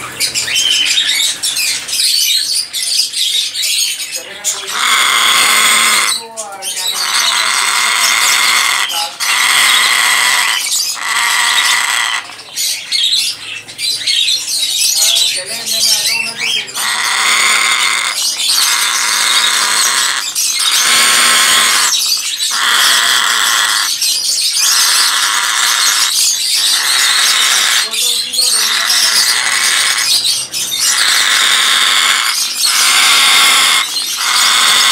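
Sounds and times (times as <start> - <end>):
parrot chatter: 0.0 - 34.9
parrot loud long calls: 4.5 - 12.4, 16.4 - 34.9.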